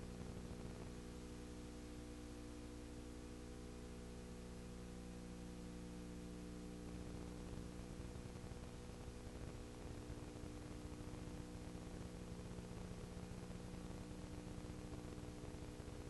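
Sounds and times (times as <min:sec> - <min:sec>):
faint hiss: 0:00.0 - 0:16.0
low electrical hum: 0:00.0 - 0:16.0.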